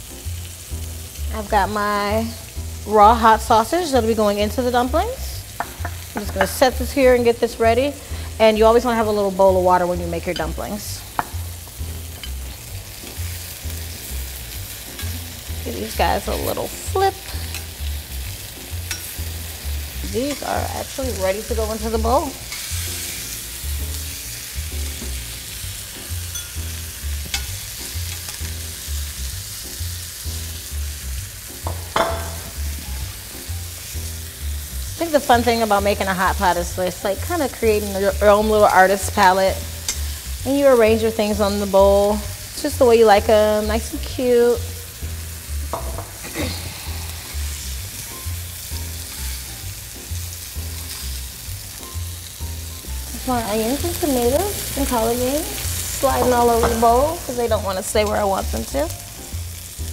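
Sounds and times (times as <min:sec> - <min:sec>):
soft music with bass beat: 0:00.0 - 0:59.9
vegetables sizzling in frying pan: 0:00.0 - 0:59.9
metal tongs clicking: 0:17.4 - 0:17.8, 0:18.9 - 0:19.2, 0:27.3 - 0:27.5.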